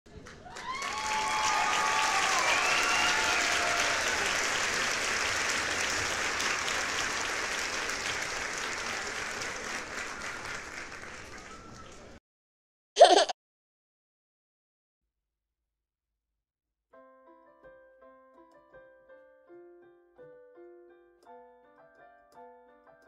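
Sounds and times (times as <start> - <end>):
crowd applause: 0.1 - 12.2.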